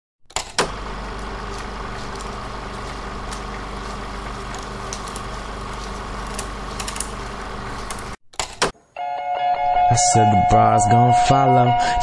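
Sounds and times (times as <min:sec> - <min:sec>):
faint crackles: 0:00.9 - 0:08.2.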